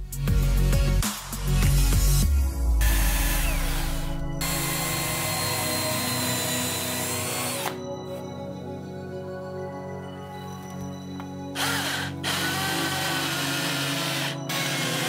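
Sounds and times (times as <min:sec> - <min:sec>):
background music: 0:00.0 - 0:15.0
rotary tool whining into wood: 0:02.8 - 0:07.8, 0:11.6 - 0:15.0.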